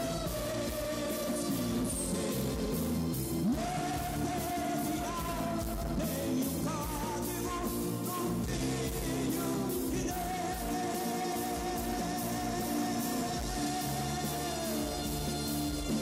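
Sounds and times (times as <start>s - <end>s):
gospel band playing: 0.0s - 16.0s
voices singing: 0.0s - 16.0s.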